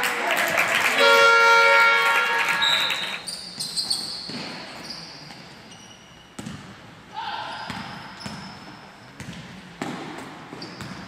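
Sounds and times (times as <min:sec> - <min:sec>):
echoing hall noise: 0:00.0 - 0:03.3
scoreboard horn blast: 0:01.0 - 0:02.9
referee's whistle: 0:01.0 - 0:05.0.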